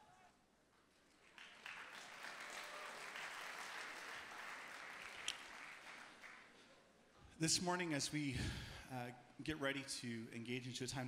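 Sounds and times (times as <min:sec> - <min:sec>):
audience applauding: 0:01.1 - 0:06.7.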